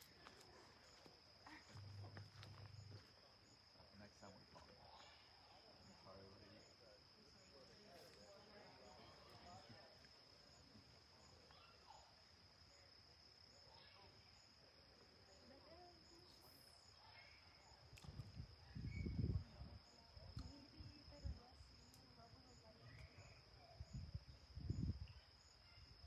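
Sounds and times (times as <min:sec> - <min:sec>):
insects trilling: 0:00.0 - 0:26.0
wind rumble on microphone: 0:18.0 - 0:21.5, 0:23.8 - 0:25.2.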